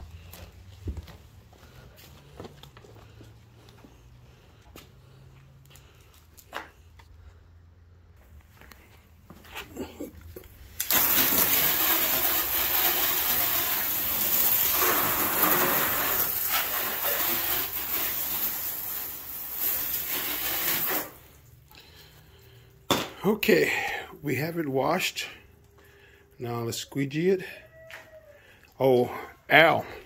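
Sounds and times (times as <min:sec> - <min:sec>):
water spraying onto car: 0:10.6 - 0:21.6.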